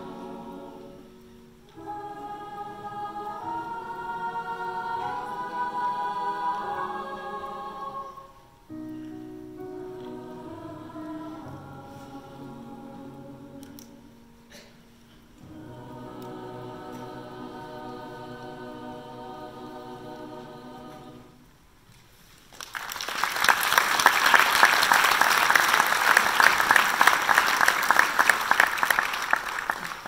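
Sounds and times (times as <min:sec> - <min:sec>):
choir singing: 0:00.0 - 0:08.6, 0:09.6 - 0:14.3, 0:15.3 - 0:21.6
audience applauding: 0:22.5 - 0:30.0.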